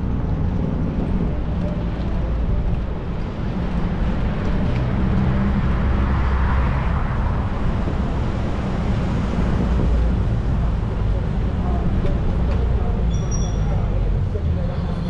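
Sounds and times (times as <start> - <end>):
vehicle passing: 0.0 - 12.0
road noise: 0.0 - 15.0
vehicle engine rumble: 0.0 - 15.0.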